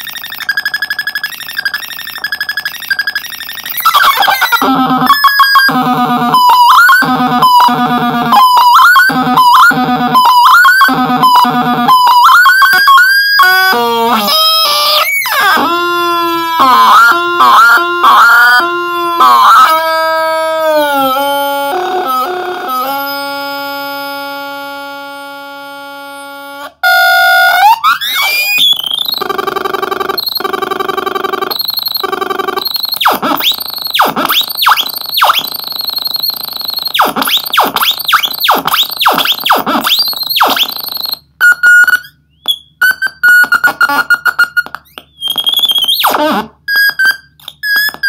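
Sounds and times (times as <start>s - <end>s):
noise synthesizer tones: 0.0s - 48.0s.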